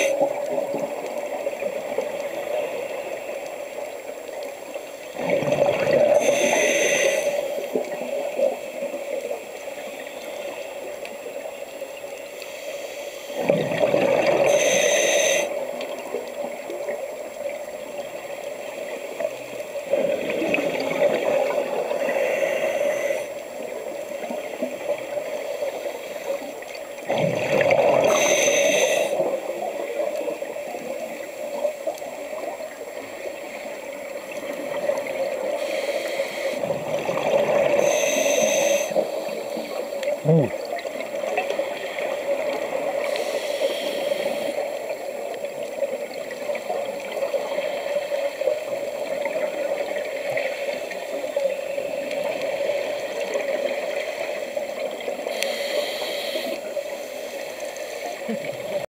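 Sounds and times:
diver breathing through regulator: 6.0s - 7.7s, 14.2s - 15.6s, 21.8s - 23.4s, 27.8s - 29.3s, 35.5s - 36.7s, 37.6s - 40.5s, 43.0s - 44.8s, 55.3s - 58.4s
faint bubbling: 12.2s - 58.9s.

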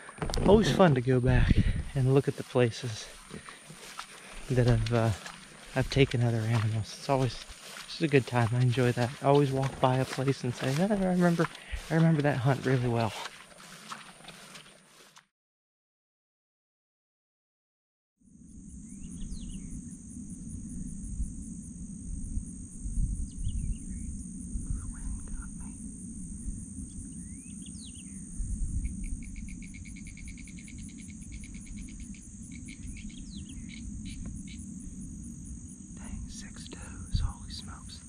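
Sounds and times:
low rumble: 0.0s - 13.2s, 18.6s - 38.0s
insects buzzing: 0.0s - 15.2s, 18.2s - 38.0s
birds calling: 29.2s - 34.6s.

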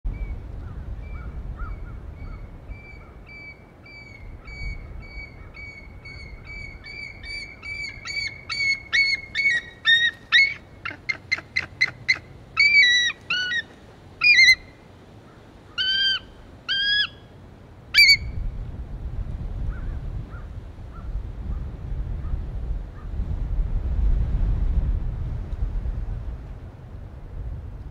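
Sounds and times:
eagles chirping and squealing: 5.2s - 14.7s, 15.8s - 17.2s, 18.0s - 18.2s.

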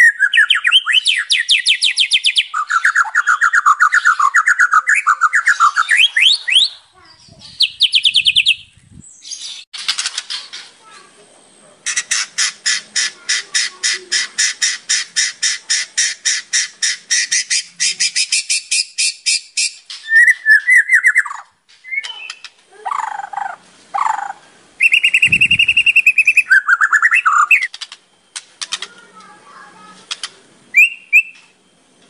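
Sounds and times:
bird singing whistled phrases: 0.0s - 9.6s, 13.9s - 23.1s, 24.0s - 27.8s, 30.7s - 31.7s.

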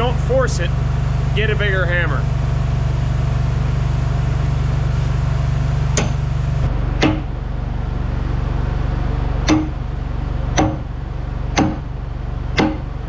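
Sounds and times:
steady low hum: 0.0s - 13.0s
hammer blows on metal: 9.5s - 9.8s, 10.6s - 10.9s, 11.6s - 11.9s, 12.6s - 12.9s.

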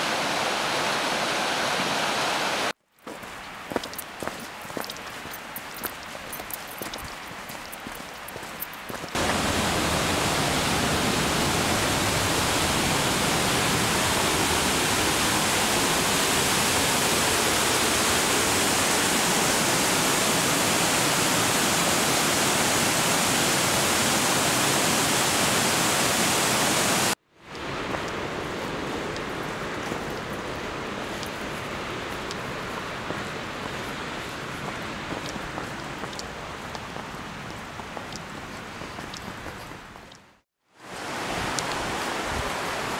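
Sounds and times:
waterfall rushing: 0.0s - 39.6s, 40.8s - 42.9s.

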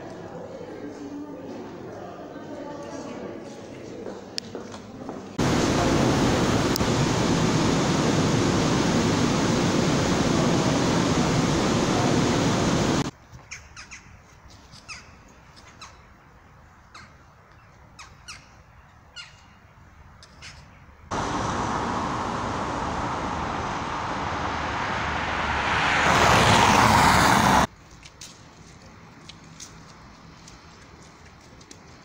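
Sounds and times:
traffic on wet cobbled street: 5.4s - 13.1s, 21.1s - 32.0s.

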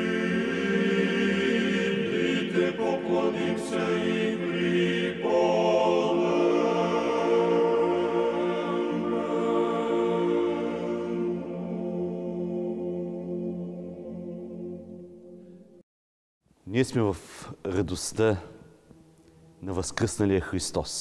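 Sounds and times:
choir chanting sustained chords: 0.0s - 15.9s.

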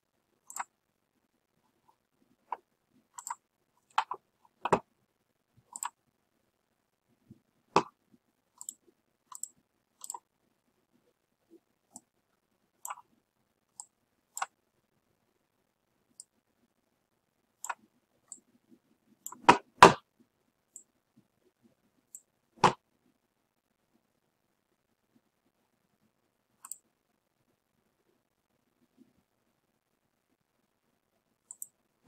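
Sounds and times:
computer mouse clicks: 0.4s - 0.8s, 2.4s - 4.9s, 5.6s - 6.0s, 8.6s - 10.3s, 12.8s - 13.1s, 13.7s - 14.6s, 17.6s - 18.5s, 19.2s - 20.0s, 26.6s - 26.9s, 31.4s - 31.8s.

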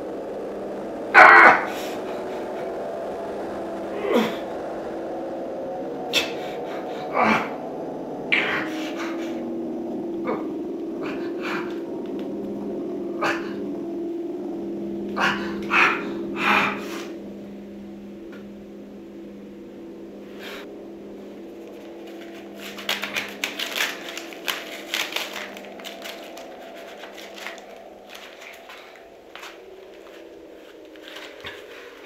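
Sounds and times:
low droning tone: 0.0s - 32.0s
crackling tearing sounds: 21.5s - 32.0s.

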